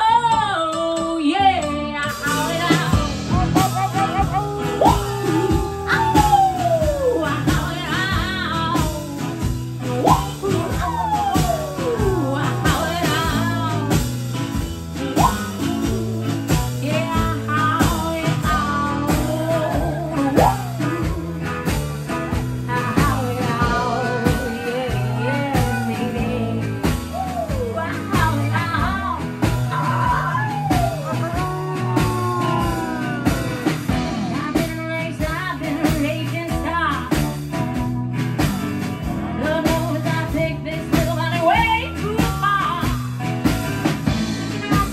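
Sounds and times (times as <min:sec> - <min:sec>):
blues-rock band playing: 0:00.0 - 0:44.9
steel guitar bending notes: 0:02.2 - 0:34.8.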